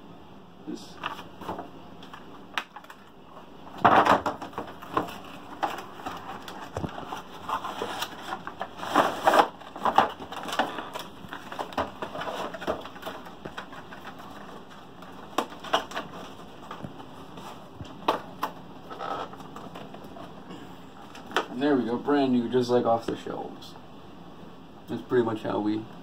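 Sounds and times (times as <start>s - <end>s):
plastic and cardboard crinkling: 1.0s - 21.7s.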